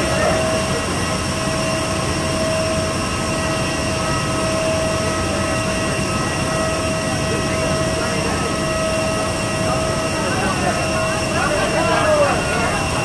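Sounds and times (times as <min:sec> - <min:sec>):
turbine high whine: 0:00.0 - 0:13.0.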